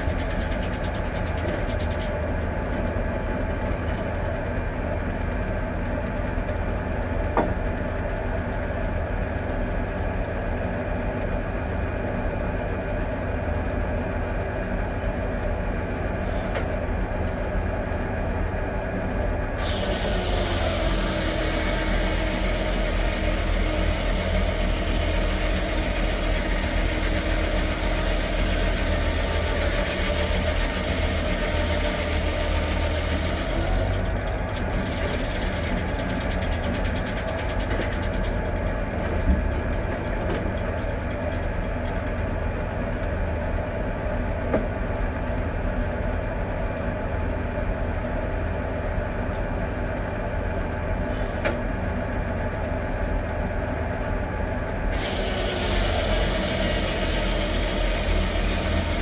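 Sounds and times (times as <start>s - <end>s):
diesel tractor engine running: 0.0s - 59.0s
saw blade hissing through wood: 19.6s - 23.6s, 54.9s - 59.0s.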